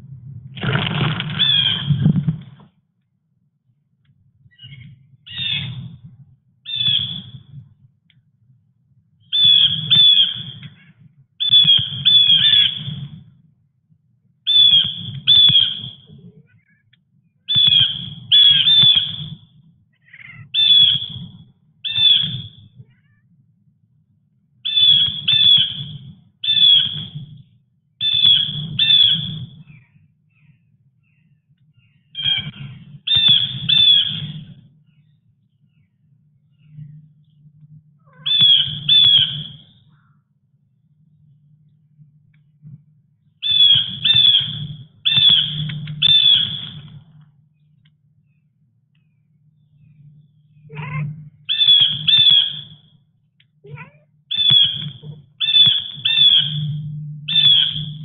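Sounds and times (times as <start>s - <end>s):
bird squawking: 1.3s - 2.0s, 4.6s - 5.9s, 6.7s - 7.4s, 9.3s - 13.0s, 14.5s - 16.9s, 17.5s - 19.4s, 20.0s - 23.2s, 24.6s - 27.2s, 28.0s - 35.1s, 38.0s - 40.2s, 43.4s - 46.9s, 50.6s - 52.9s, 53.7s - 58.0s.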